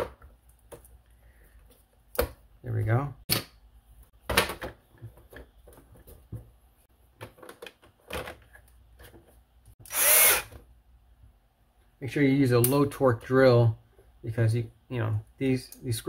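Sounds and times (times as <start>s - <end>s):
cordless drill running: 9.8s - 10.5s.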